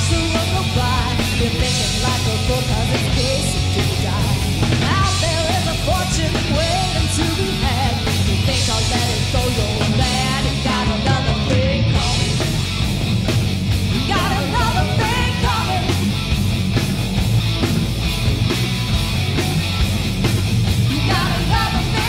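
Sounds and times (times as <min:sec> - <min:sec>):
woman singing lead vocal: 0:00.0 - 0:12.3, 0:14.0 - 0:16.0, 0:20.9 - 0:22.0
hard rock band playing: 0:00.0 - 0:22.0.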